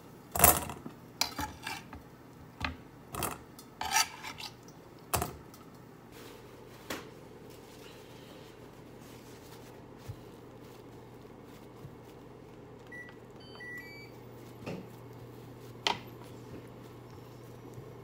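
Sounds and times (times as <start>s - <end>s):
steady low hum: 4.6s - 18.0s
hands patting paper towel: 6.2s - 13.4s
faint high beeps: 12.9s - 14.2s.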